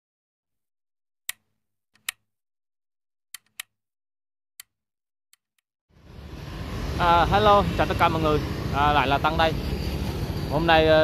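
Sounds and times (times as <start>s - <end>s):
computer mouse clicks: 1.3s - 2.2s, 3.4s - 3.7s.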